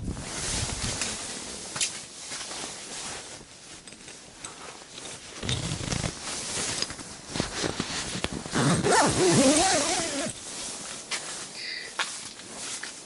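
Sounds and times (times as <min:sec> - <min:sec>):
rustling: 0:00.1 - 0:13.0
zipper-like scraping: 0:05.4 - 0:06.4, 0:07.4 - 0:10.4.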